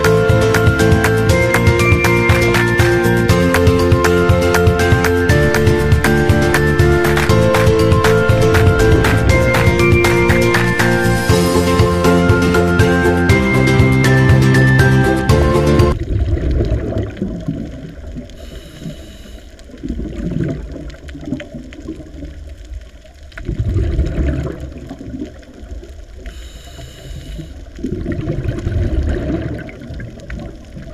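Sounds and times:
underwater rushing water: 0:00.0 - 0:30.9
brief high hiss: 0:18.4 - 0:19.5.

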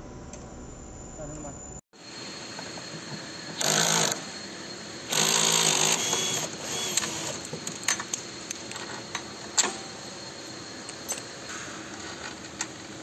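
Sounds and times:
cordless drill driving screw: 0:05.1 - 0:07.4.

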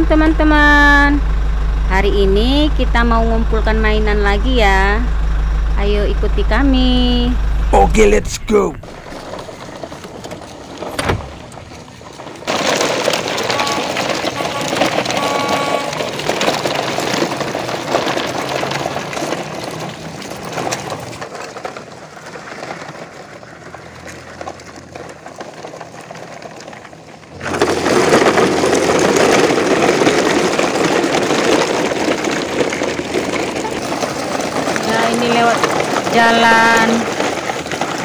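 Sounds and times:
toy trucks rolling over gravel: 0:08.9 - 0:38.0.

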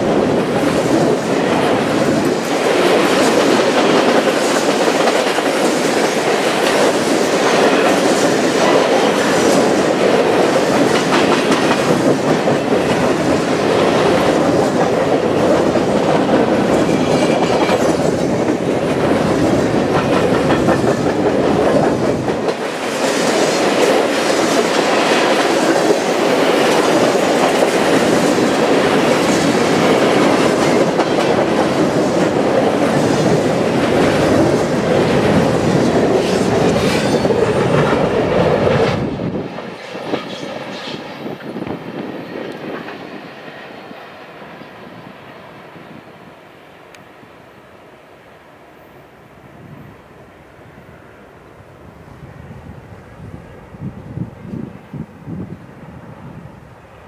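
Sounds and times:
train wheels clattering over rail joints: 0:00.2 - 0:43.7.

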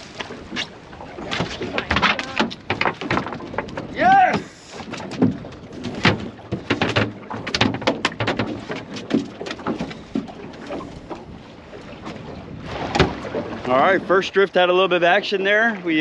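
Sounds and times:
water slapping against boat hull: 0:00.0 - 0:16.0.

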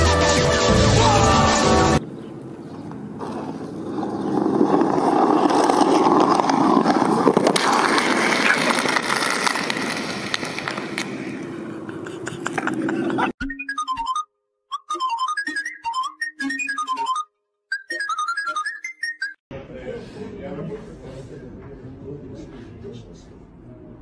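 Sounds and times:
skateboard wheels rolling on pavement: 0:02.0 - 0:13.2.

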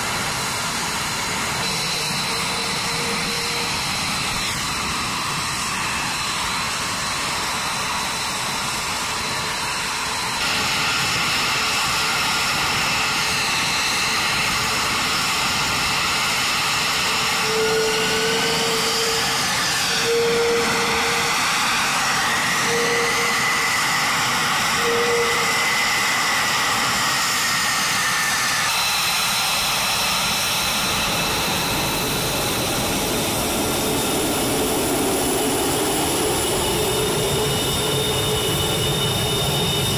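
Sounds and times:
jet engine roar and whine: 0:00.0 - 0:39.9
whistling tones sliding: 0:22.6 - 0:23.7.

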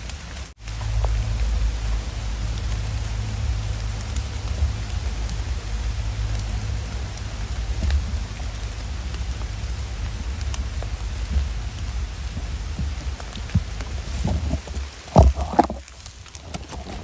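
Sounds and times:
raindrop ticks: 0:00.0 - 0:17.0
steady rain hiss: 0:00.0 - 0:17.0
low rumble: 0:00.3 - 0:17.0.

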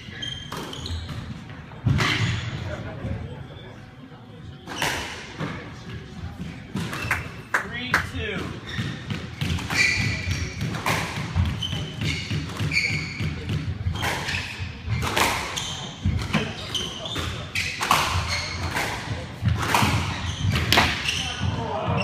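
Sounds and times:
sneakers squeaking on hardwood: 0:00.0 - 0:03.2, 0:08.4 - 0:22.0.

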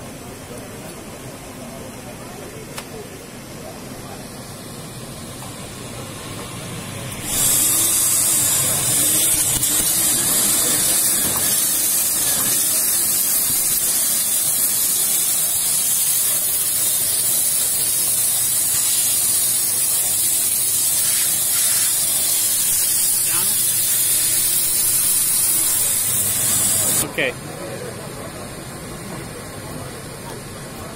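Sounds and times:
steam nozzle hissing: 0:05.6 - 0:27.0.

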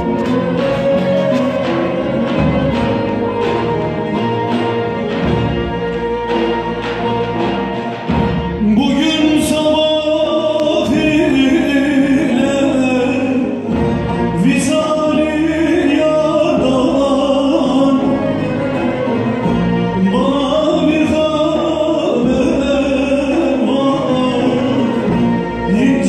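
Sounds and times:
folk string ensemble: 0:00.0 - 0:26.0
man singing folk song: 0:08.5 - 0:26.0.

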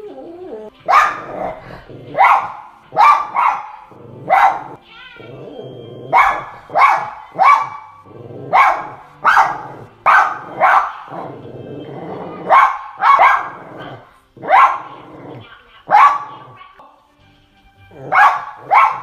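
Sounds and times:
faint television film soundtrack: 0:00.0 - 0:19.0
dog barking: 0:00.8 - 0:04.8, 0:06.0 - 0:11.5, 0:12.3 - 0:16.6, 0:18.0 - 0:19.0.

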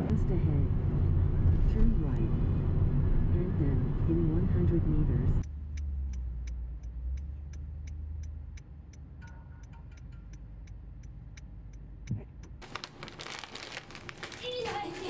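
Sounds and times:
turn signal ticking: 0:05.4 - 0:12.6.

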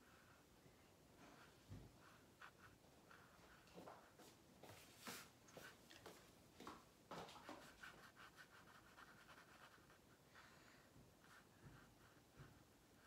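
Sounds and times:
pencil scratching on paper: 0:07.4 - 0:10.2, 0:11.2 - 0:13.0.

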